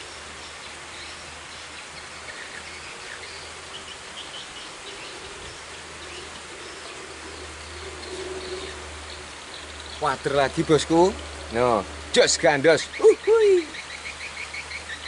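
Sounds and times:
outdoor background hiss: 0.0s - 15.0s
faint bird chirps: 12.8s - 15.0s.

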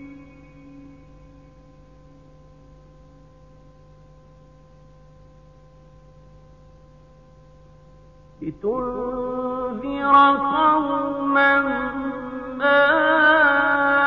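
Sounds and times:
tape hiss: 0.0s - 13.9s
faint hum of held tones: 0.0s - 14.0s
person reciting: 8.4s - 14.0s.

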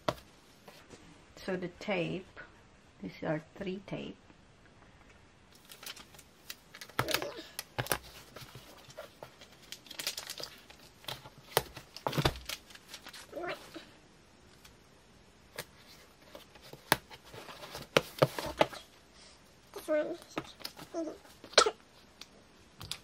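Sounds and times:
cardboard crinkling and tapping: 0.0s - 0.2s, 5.6s - 13.2s, 15.6s - 18.8s.

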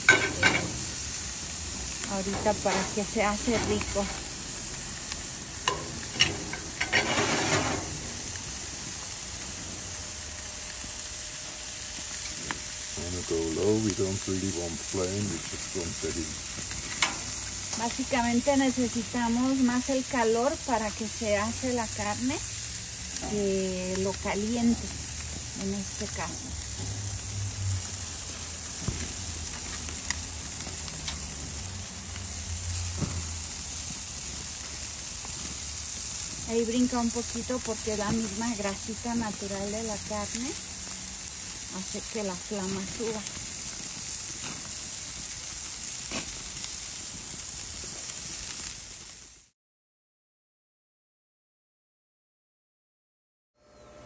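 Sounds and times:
fat popping in flame: 0.0s - 9.6s, 45.9s - 47.2s
burger patties sizzling on grill: 0.0s - 49.6s.

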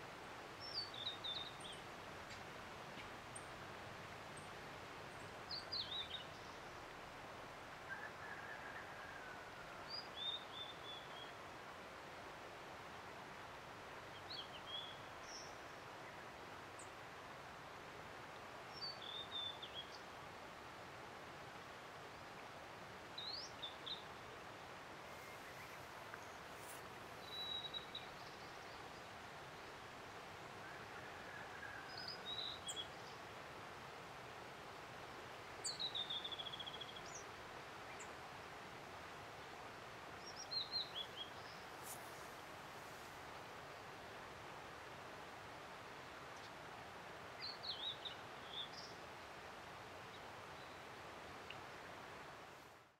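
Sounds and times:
background hiss: 0.0s - 52.9s
river rushing: 0.0s - 52.9s
bird singing whistled notes: 27.2s - 28.3s.

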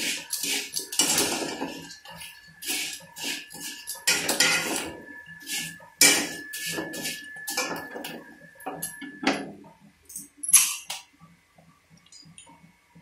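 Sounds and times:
metal skimmer scraping pan: 0.0s - 9.0s.

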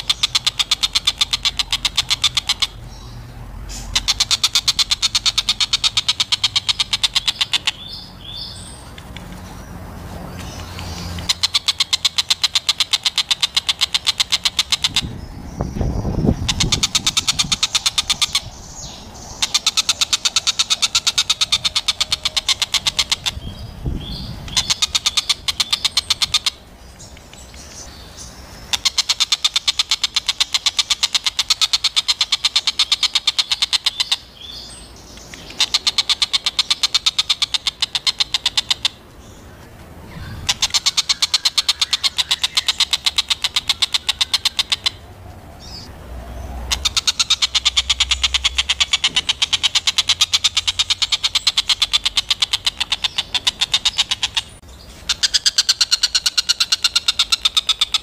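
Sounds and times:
bird chattering call: 0.0s - 9.7s, 10.3s - 45.0s, 46.6s - 58.0s.

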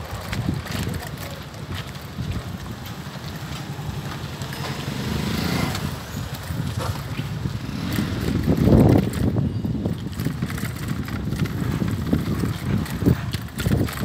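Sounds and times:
bicycle riding over stony ground: 0.0s - 14.0s
small rattles and knocks: 0.0s - 14.0s.

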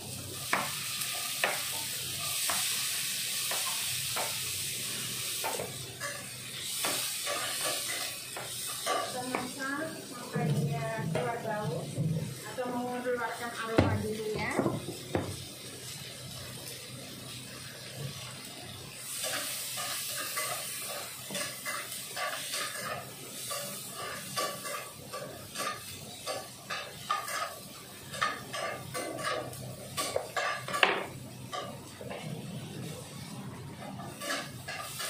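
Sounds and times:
vegetables sizzling in oil: 0.0s - 35.0s
utensil scraping a pan: 19.2s - 30.8s, 34.0s - 35.0s.

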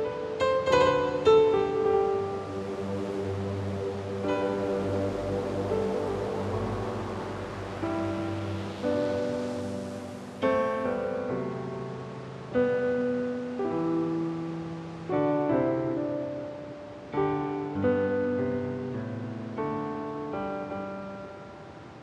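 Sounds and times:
slow piano chords: 0.0s - 22.0s.

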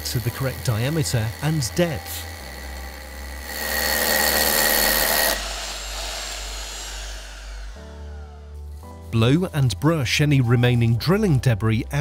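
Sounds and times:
hammer drill drilling into concrete: 0.0s - 8.8s.

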